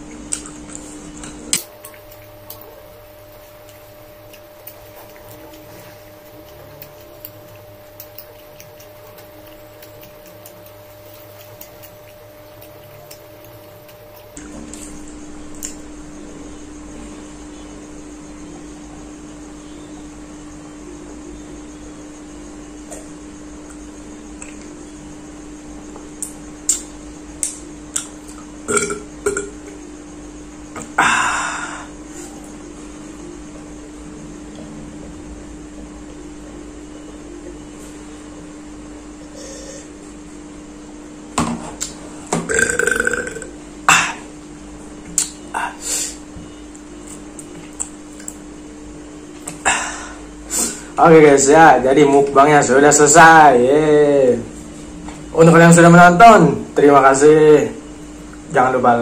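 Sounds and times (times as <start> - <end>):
steady high whine: 0.0 - 59.0
swallowing clicks: 0.2 - 15.8, 24.4 - 24.7, 26.2 - 29.7, 41.8 - 43.5
mouth clicks: 26.2 - 29.6, 41.8 - 43.5, 45.1 - 45.4
man burping: 28.7 - 29.6, 42.5 - 44.3.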